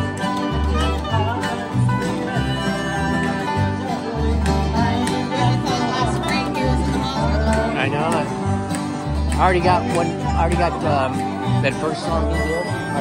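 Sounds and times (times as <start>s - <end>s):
harmonica bending lead line: 0.0s - 13.0s
mandolin: 0.0s - 13.0s
plucked upright bass: 0.0s - 13.0s
resonator guitar: 0.0s - 13.0s
strummed acoustic guitars: 0.0s - 13.0s.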